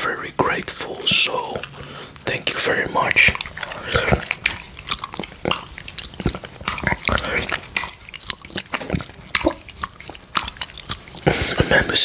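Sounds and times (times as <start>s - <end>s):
lip smacks: 0.6s - 12.0s
wet licking and slurping: 0.6s - 12.0s
tongue clicks: 3.1s - 12.0s.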